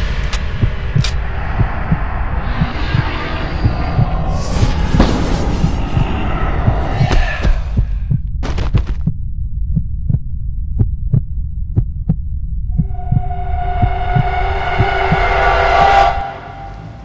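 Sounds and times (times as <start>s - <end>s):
low throbbing drone: 0.0s - 8.4s, 9.3s - 17.0s
heartbeat-like double thump: 0.4s - 15.1s
sustained high tone: 12.8s - 17.0s.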